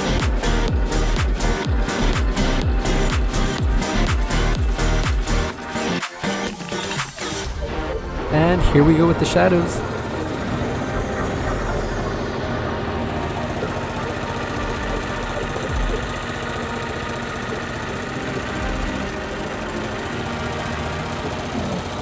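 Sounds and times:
embroidery machine stitching: 8.1 - 22.0.

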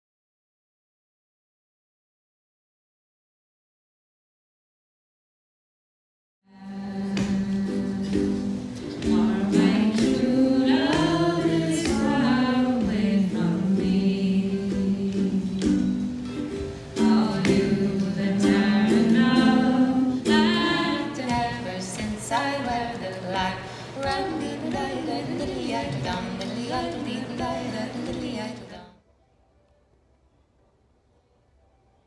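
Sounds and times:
voices singing a folk song: 6.5 - 29.0.

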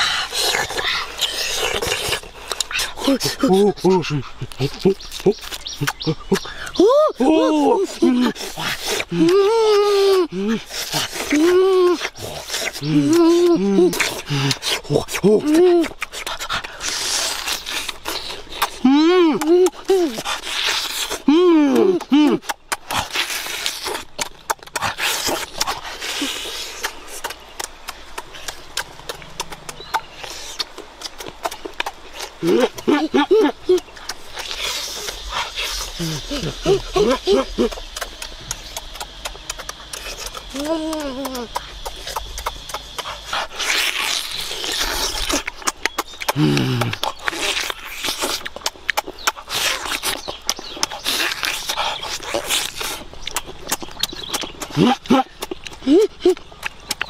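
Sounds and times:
wet mouth clicks and smacks: 0.0 - 6.8, 8.3 - 57.0
biting and chewing meat: 0.0 - 57.0
meat tearing: 33.7 - 57.0.

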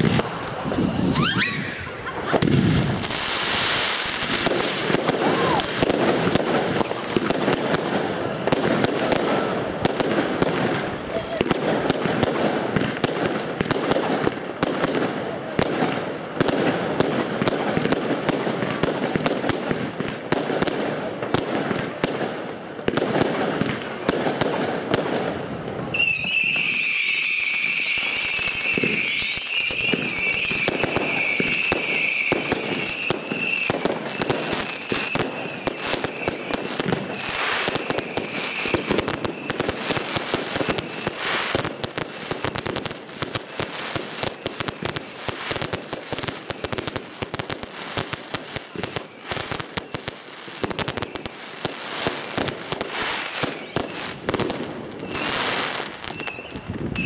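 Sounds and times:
firework high whistle: 0.0 - 6.0, 25.9 - 41.8, 48.6 - 57.0
fireworks crackling and popping: 0.0 - 57.0.

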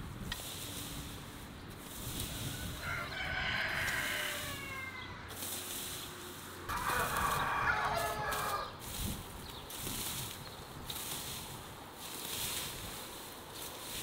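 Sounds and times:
rake scraping dry grass: 0.0 - 14.0
rooster crowing: 2.3 - 5.3, 6.7 - 8.8.

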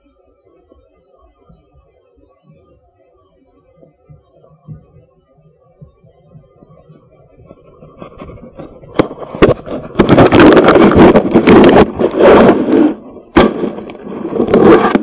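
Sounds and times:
scraping against microphone case: 7.5 - 15.0
sharp knocks: 13.3 - 15.0.

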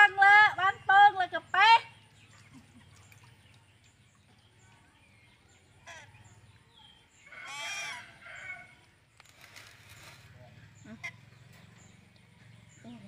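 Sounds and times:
animal call: 7.3 - 8.7.

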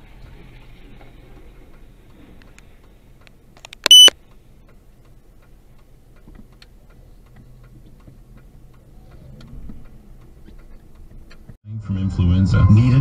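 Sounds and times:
low engine and road hum: 0.0 - 11.6
turn signal ticking: 1.6 - 11.6.

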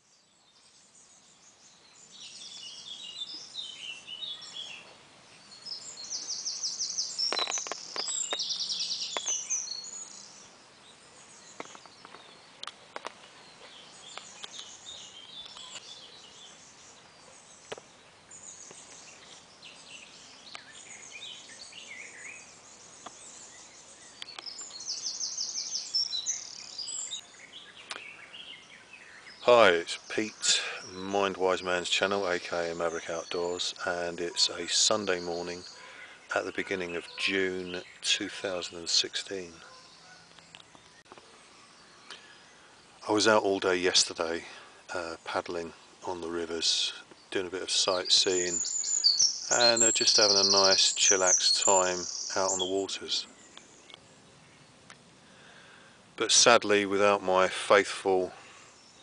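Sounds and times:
songbirds singing: 0.0 - 59.0
sharp clicks: 7.3 - 8.5.

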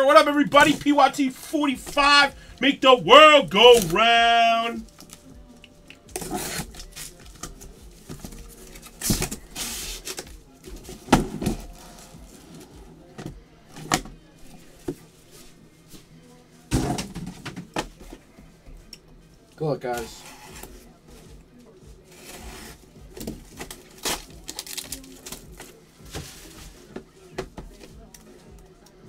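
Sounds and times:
cardboard boxes knocking and scraping: 10.7 - 11.8.

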